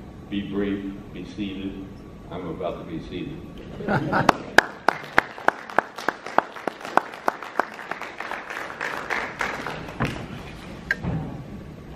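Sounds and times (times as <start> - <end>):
audience applauding: 4.0 - 10.4
close sharp hand claps: 4.3 - 10.3.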